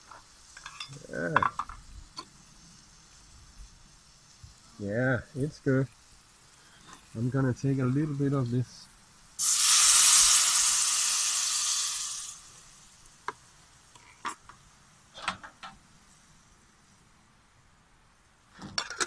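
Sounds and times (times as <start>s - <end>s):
food sizzling in frying pan: 0.0s - 16.5s.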